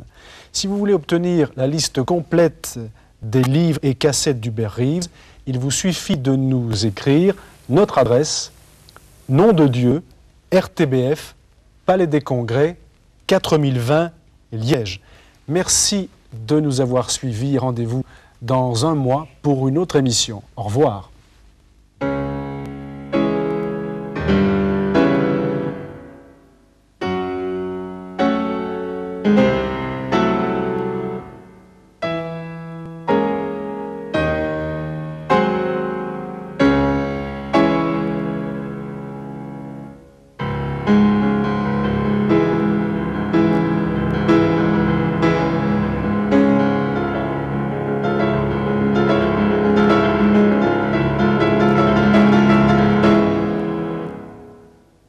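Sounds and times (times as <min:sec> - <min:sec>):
slow piano chords: 0:22.0 - 0:55.0.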